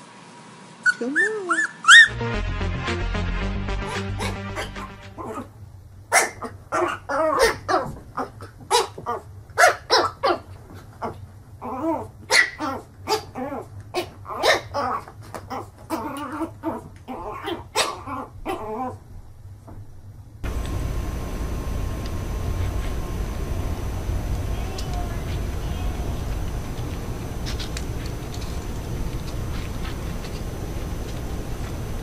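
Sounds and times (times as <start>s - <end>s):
puppy yapping: 0.8s - 2.1s, 11.6s - 19.0s.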